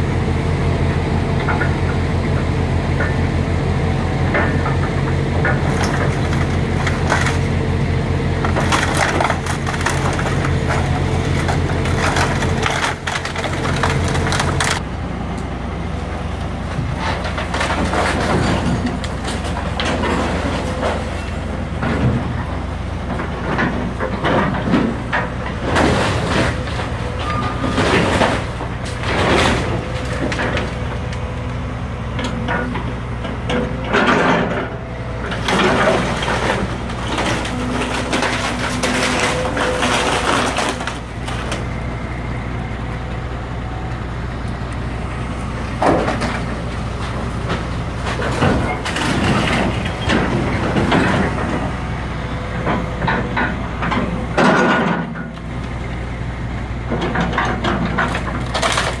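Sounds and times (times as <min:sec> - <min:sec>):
excavator diesel engine running: 0:00.0 - 0:59.0
wood cracking and crashing: 0:05.4 - 0:07.8, 0:08.4 - 0:14.8, 0:17.0 - 0:31.3, 0:35.3 - 0:41.9, 0:44.6 - 0:55.2, 0:57.0 - 0:59.0.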